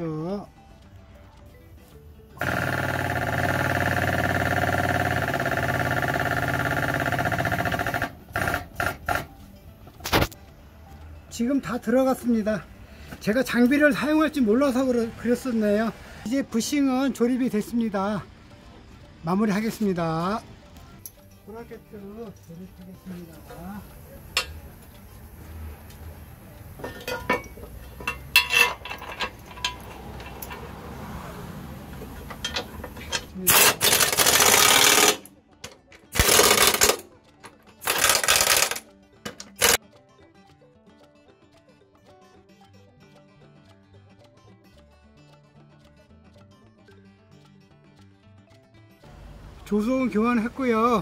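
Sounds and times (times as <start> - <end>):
foot pump pulsing: 2.4 - 9.3
metal clinks and knocks: 26.8 - 30.8, 31.9 - 39.8.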